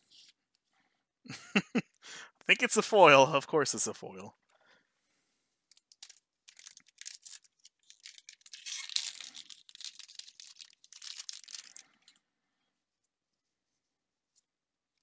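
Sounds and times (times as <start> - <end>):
foil wrapper tearing and crinkling: 5.7 - 12.1.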